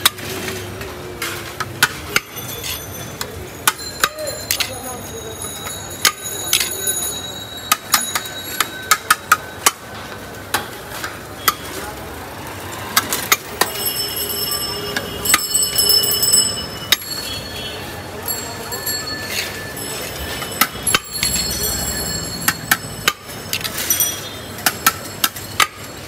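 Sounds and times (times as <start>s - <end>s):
metal spoon clinking on pot: 2.0s - 9.7s, 18.3s - 26.0s.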